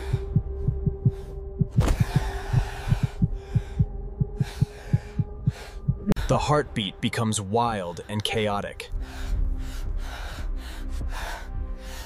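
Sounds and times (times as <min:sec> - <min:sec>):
fast heartbeat thumping: 0:00.0 - 0:06.2.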